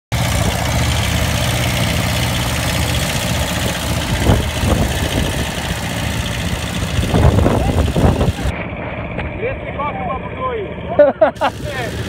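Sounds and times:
tractor engines rumbling: 0.1s - 12.0s.

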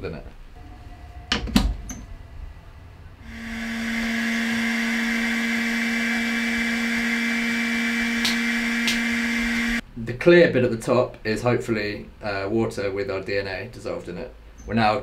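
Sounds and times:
centrifuge motor whirring: 0.6s - 9.8s.

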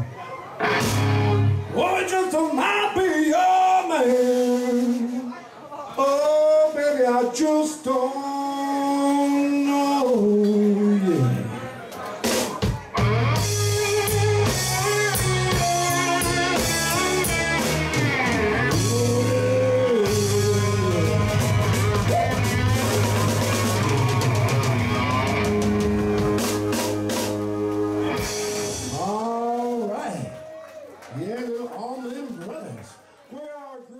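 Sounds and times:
bass guitar: 0.0s - 1.7s, 12.6s - 30.0s
electric guitar: 0.0s - 1.7s, 12.2s - 29.7s
drums with cymbals: 12.2s - 29.7s.

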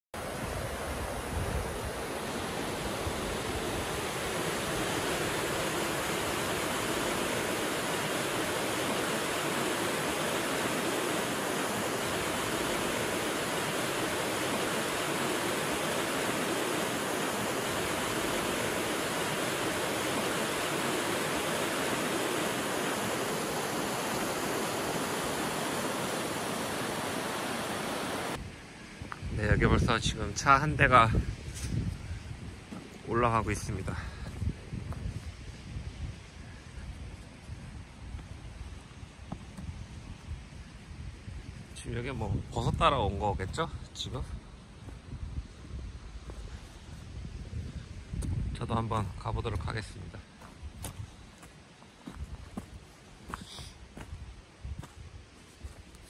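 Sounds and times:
creek rushing over rocks: 0.2s - 28.4s.

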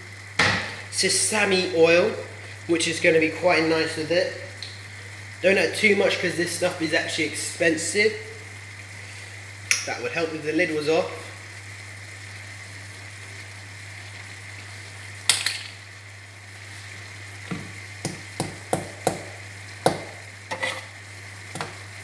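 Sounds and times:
food sizzling in a frying pan: 0.0s - 22.0s.

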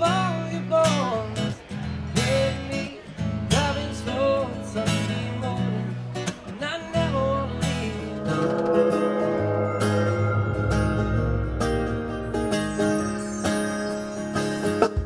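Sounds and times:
man singing: 0.0s - 9.0s
acoustic guitar strumming: 0.0s - 15.0s
live band with keyboard and guitar: 0.0s - 15.0s.

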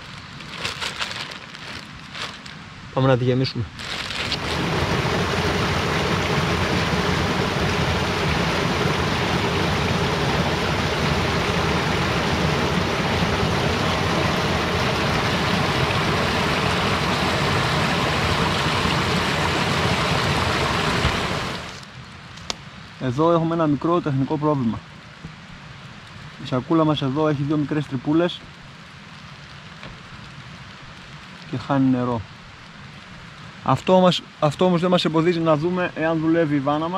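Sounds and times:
water filling plastic bag: 0.0s - 2.7s, 3.7s - 6.3s.

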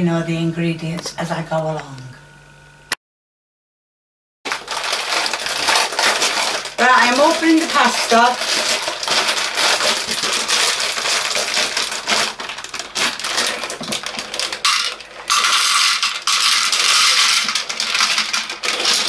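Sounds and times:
dry pasta pouring into metal pan: 4.5s - 19.0s
plastic bag crinkling: 4.5s - 19.0s.

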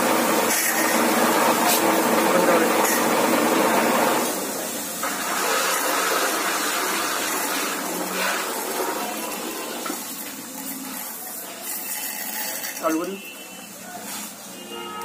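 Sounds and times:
pump humming: 0.0s - 10.8s
water jetting into plastic bucket: 0.0s - 12.9s.

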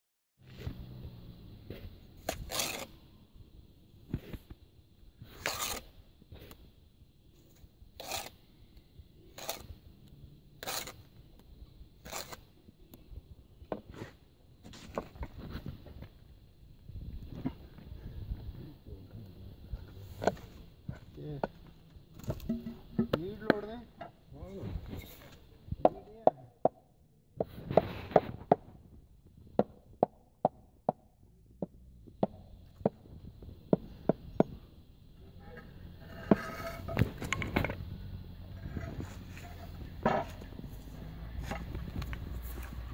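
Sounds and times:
trowel scraping wet mortar: 2.2s - 3.0s, 5.3s - 6.6s, 8.0s - 8.4s, 9.3s - 9.8s, 10.6s - 11.1s, 12.0s - 12.6s, 36.0s - 37.8s, 38.6s - 40.4s.

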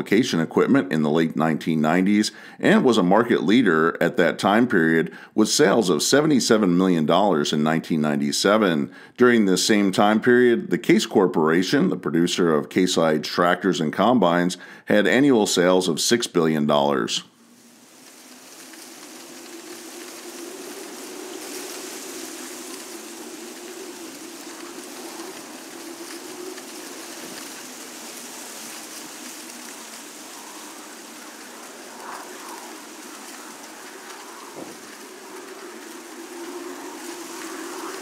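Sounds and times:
even rushing noise: 17.3s - 38.0s.

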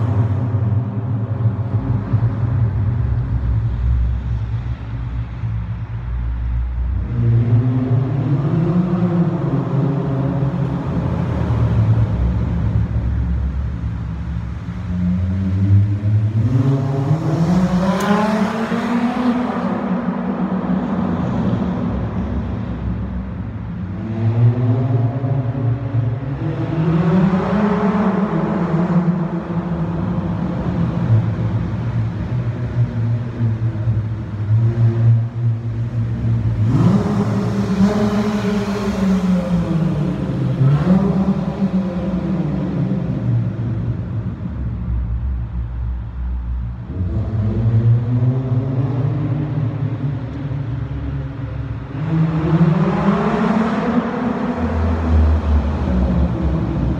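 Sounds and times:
car engine revving and idling: 0.0s - 56.9s.

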